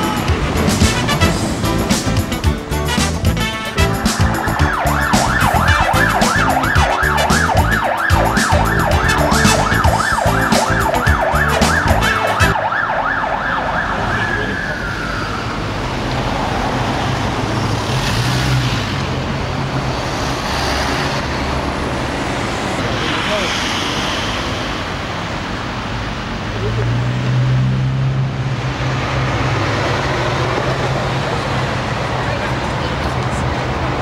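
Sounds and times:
city traffic noise: 0.0s - 34.0s
ambulance siren yelping: 3.8s - 15.8s.

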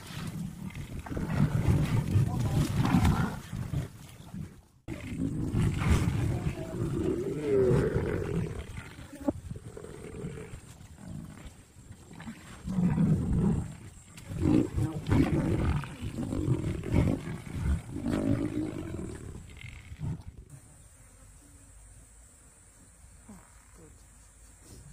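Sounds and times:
lion growling: 0.6s - 3.9s, 4.9s - 20.5s.

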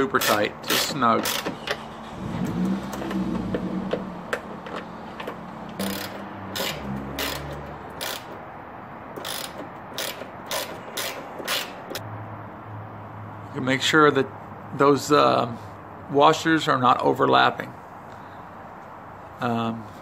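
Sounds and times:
hand ratchet clicking: 0.0s - 1.8s, 3.9s - 8.4s, 9.1s - 12.0s.

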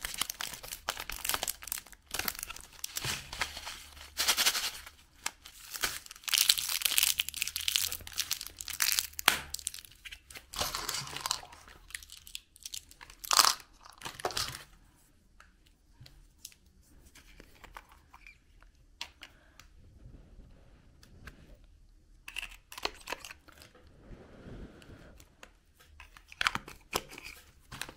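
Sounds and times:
plastic wrapper crinkling: 0.0s - 14.7s.

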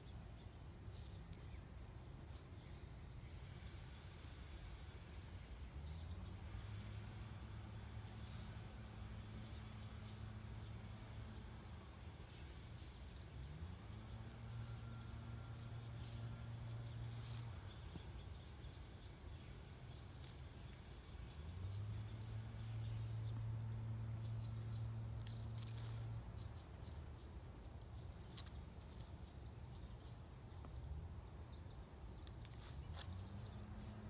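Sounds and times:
small ticks: 28.2s - 30.9s.

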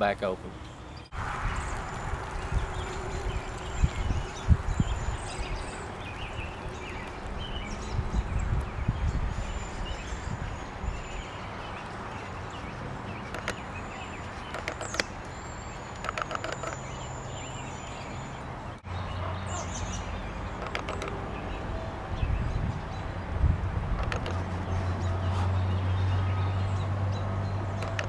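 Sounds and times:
high chirps and clicks: 13.2s - 17.4s.

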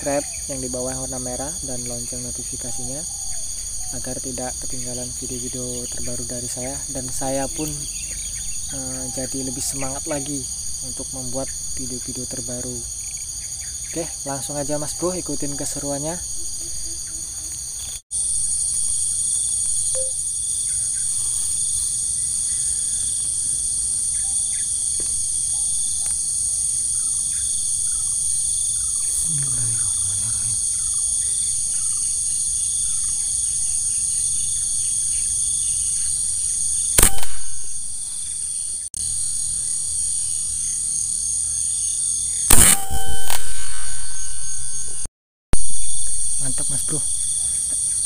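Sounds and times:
high insect buzzing: 3.4s - 11.9s, 16.2s - 48.0s
air rifle shot: 37.0s - 37.9s, 42.5s - 44.8s.

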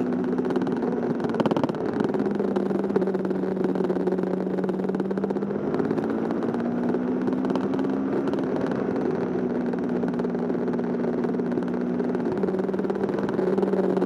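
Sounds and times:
motorcycle engine cruising: 0.0s - 14.0s
wind and road noise: 0.0s - 14.0s.

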